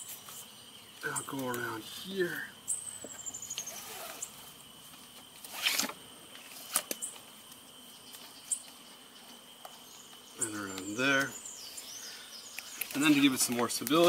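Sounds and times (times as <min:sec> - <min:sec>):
insect chirring: 0:00.0 - 0:14.0
strap webbing rustling and knocking: 0:04.9 - 0:07.2.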